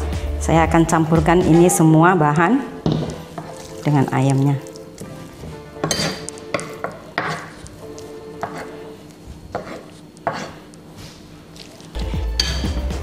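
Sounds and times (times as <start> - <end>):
spoons knocking on bowl: 2.8 - 3.8, 5.8 - 8.8, 12.4 - 12.8
metal spoons scraping wooden board: 3.0 - 3.8, 5.0 - 7.8, 8.4 - 8.9, 9.5 - 10.6.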